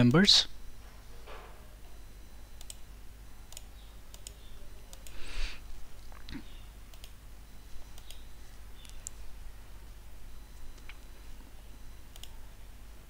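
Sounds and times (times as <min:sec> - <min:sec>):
low steady hum: 0:00.0 - 0:13.0
computer mouse clicking: 0:02.6 - 0:02.8, 0:03.5 - 0:05.2, 0:06.9 - 0:07.2, 0:07.9 - 0:09.2, 0:12.1 - 0:12.4.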